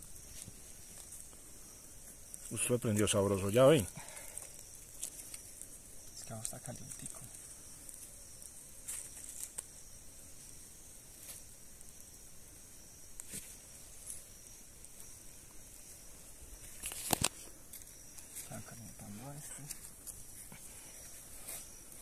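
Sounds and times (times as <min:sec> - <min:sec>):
fire hissing: 0:00.0 - 0:22.0
twigs crackling: 0:02.1 - 0:10.0, 0:13.1 - 0:18.6.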